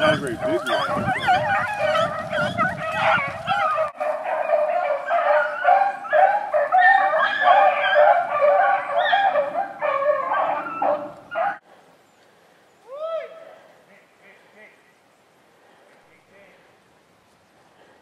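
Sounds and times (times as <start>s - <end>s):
hounds baying and yelping: 0.0s - 11.6s.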